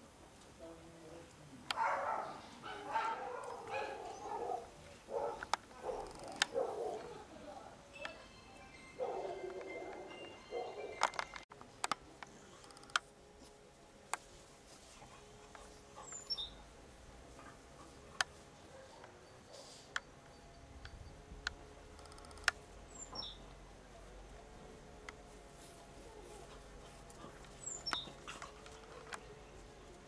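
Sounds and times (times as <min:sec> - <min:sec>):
faint outdoor ambience: 0:00.0 - 0:30.0
sharp clicks: 0:20.8 - 0:22.6.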